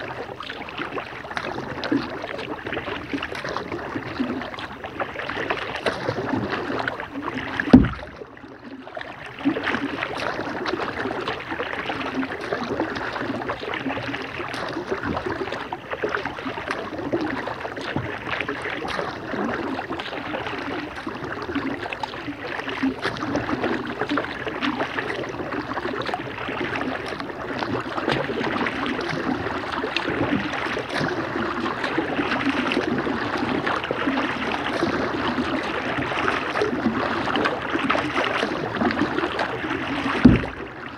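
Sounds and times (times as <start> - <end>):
paddle splashing and dripping: 0.0 - 40.9
water lapping on plastic hull: 0.0 - 40.9
loud thump: 7.7 - 8.2, 40.2 - 40.6.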